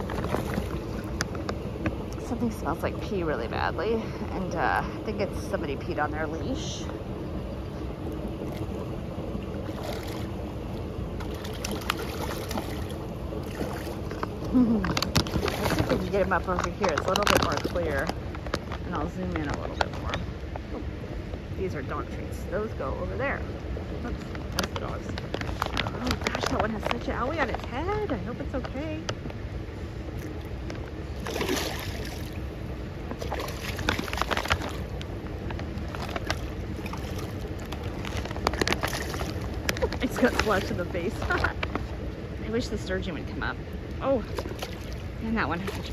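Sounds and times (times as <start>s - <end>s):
fish splashing: 0.0s - 3.4s, 5.1s - 21.0s, 30.0s - 42.3s, 43.8s - 45.9s.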